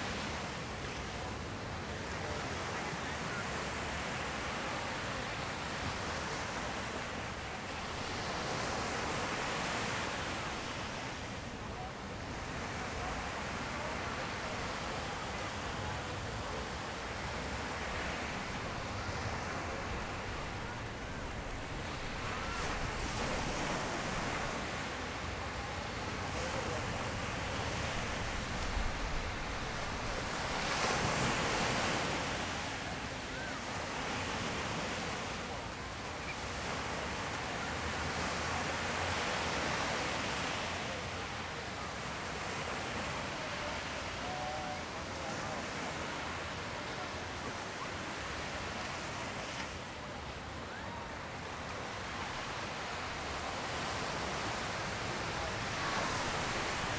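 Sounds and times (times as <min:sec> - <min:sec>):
surf washing up a beach: 0:00.0 - 0:56.9.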